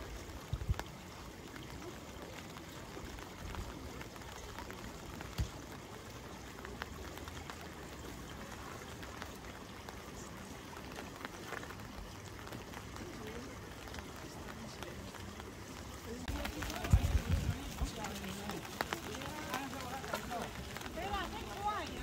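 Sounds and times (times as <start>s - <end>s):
patter of water: 0.0s - 22.0s.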